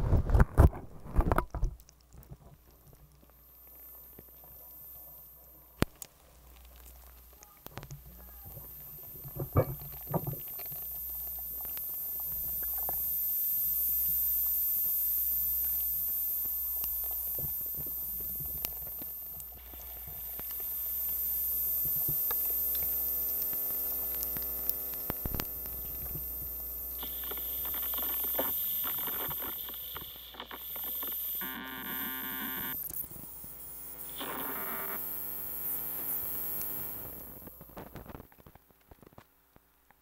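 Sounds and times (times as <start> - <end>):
low electronic hum: 0.0 - 39.3
held electronic tones: 24.6 - 37.6.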